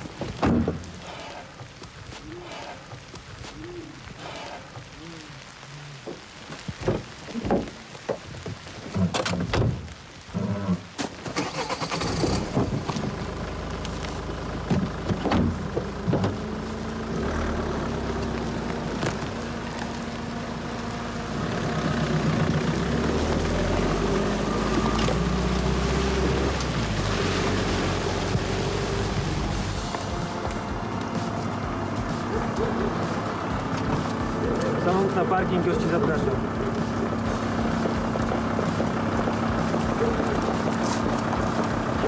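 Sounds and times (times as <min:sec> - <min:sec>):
knocks and rustles: 0:00.0 - 0:01.0, 0:06.1 - 0:11.2, 0:12.3 - 0:13.3, 0:14.6 - 0:16.4
car engine starting and running: 0:08.9 - 0:42.0.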